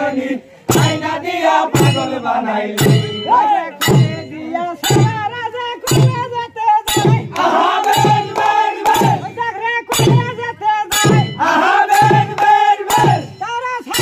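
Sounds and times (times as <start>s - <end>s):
men singing together: 0.0s - 6.2s, 6.9s - 9.4s, 10.9s - 14.0s
strong drum beat: 0.6s - 14.0s.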